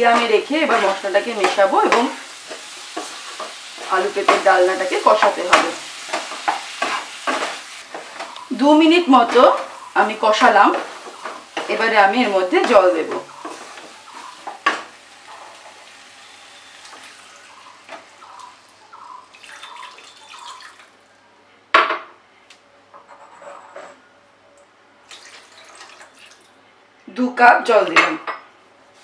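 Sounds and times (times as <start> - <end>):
water splashing into pan: 19.3 - 20.9, 25.1 - 26.4.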